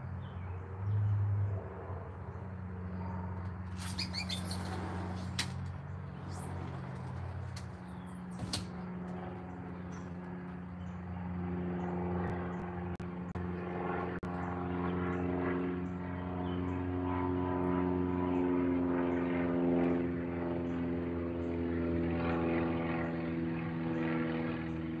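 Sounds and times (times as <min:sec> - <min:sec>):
engine drone: 0:00.0 - 0:25.0.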